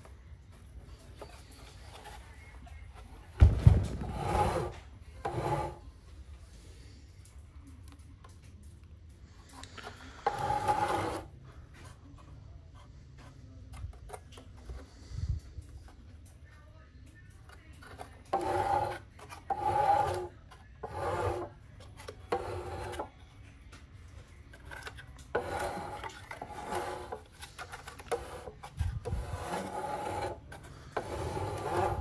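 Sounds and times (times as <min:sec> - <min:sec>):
rasping scrape of turned motor: 0:04.0 - 0:05.8, 0:09.9 - 0:11.4, 0:17.8 - 0:23.1, 0:24.6 - 0:32.0.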